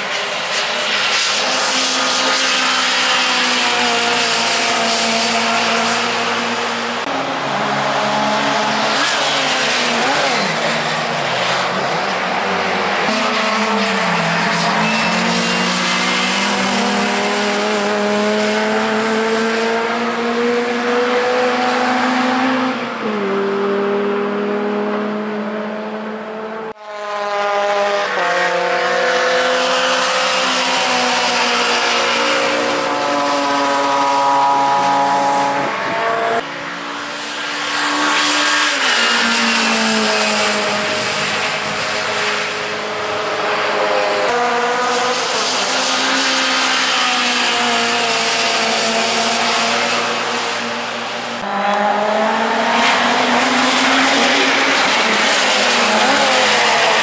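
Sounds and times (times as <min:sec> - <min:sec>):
car engine revving with gear changes: 0:43.6 - 0:57.0.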